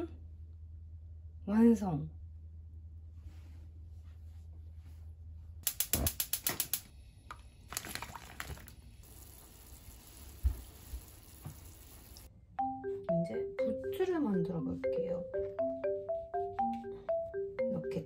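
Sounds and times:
light knocks and splashes: 0:07.7 - 0:08.8
water boiling in frying pan: 0:07.7 - 0:12.3.

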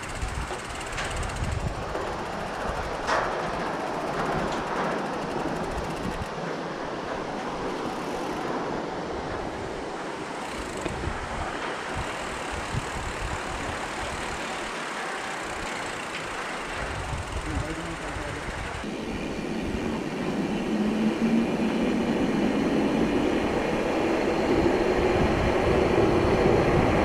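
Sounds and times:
bike knocking and rattling: 0:00.0 - 0:06.4, 0:10.3 - 0:18.9
tyre and wind noise: 0:00.0 - 0:14.7, 0:15.3 - 0:27.0.

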